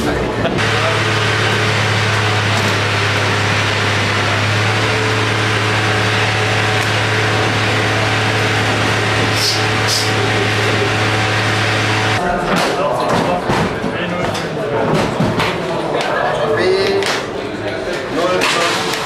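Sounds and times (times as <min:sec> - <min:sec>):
low machine hum: 0:00.0 - 0:12.3
short hisses: 0:09.3 - 0:10.2.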